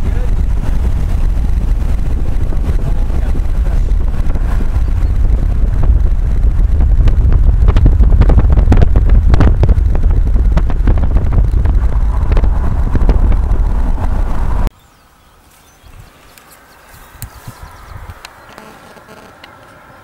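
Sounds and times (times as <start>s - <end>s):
car driving rumble: 0.0s - 14.7s
gusty thumps: 0.0s - 14.7s
wind buffeting microphone: 0.0s - 14.7s, 15.8s - 18.6s.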